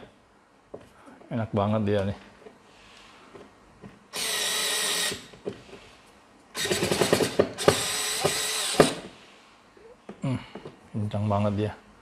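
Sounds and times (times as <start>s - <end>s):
electric screwdriver motor: 4.2s - 5.3s, 6.6s - 9.0s.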